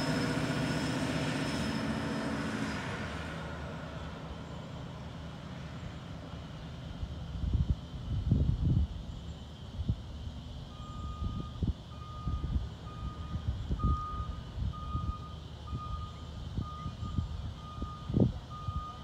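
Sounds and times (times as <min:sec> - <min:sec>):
wind rumbling on microphone: 0:07.0 - 0:10.2, 0:11.0 - 0:19.0
truck backup alarm beeping: 0:10.7 - 0:19.0.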